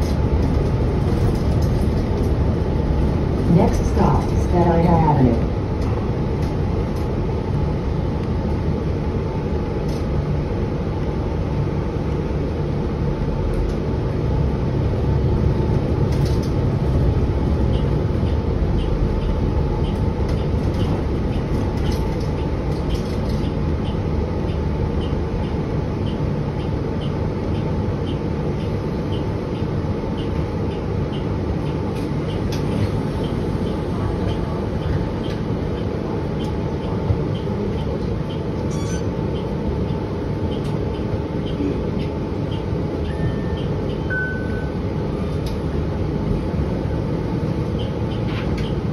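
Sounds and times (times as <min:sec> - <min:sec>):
bus drivetrain and road rumble: 0:00.0 - 0:48.9
light regular ticking: 0:17.6 - 0:44.1.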